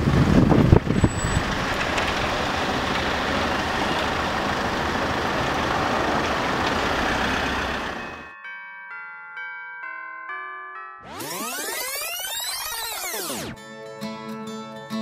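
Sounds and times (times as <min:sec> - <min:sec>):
city street traffic: 0:00.0 - 0:08.3.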